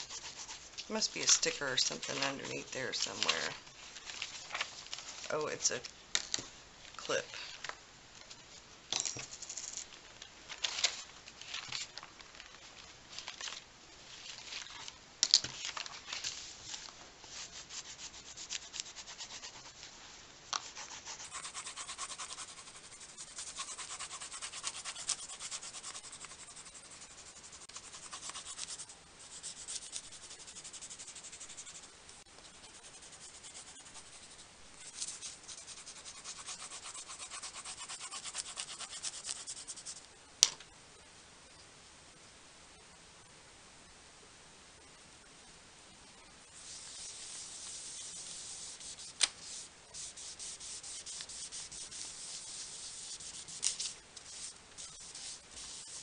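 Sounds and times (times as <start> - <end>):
pencil scratching on paper: 0.0 - 3.5, 17.2 - 19.9, 20.6 - 40.0, 46.6 - 56.0
paper pages rustling: 1.8 - 5.4, 9.4 - 17.5.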